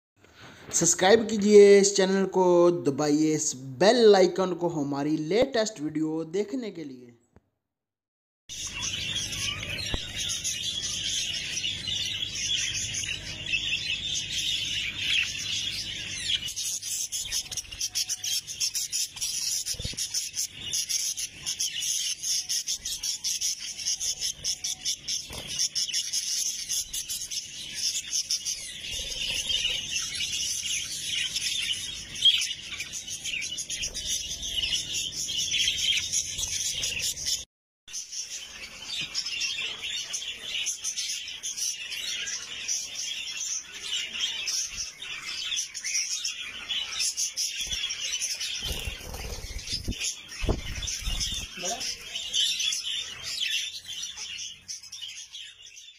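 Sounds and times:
budgerigars chattering and warbling: 8.6s - 37.4s, 38.2s - 55.9s.

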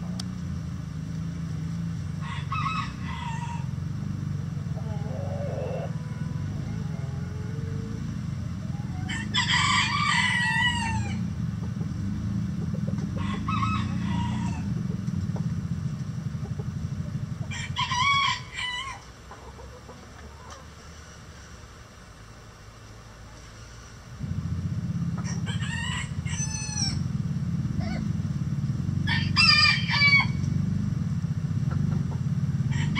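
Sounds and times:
steady low rumble: 0.0s - 20.4s, 24.0s - 32.9s
chickens calling: 2.2s - 15.6s, 16.3s - 20.8s, 31.6s - 32.9s.

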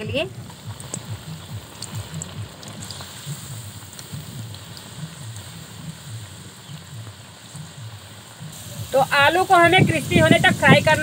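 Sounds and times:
oil sizzling and crackling: 0.0s - 11.0s
skimmer clicking in oil: 0.4s - 3.2s.

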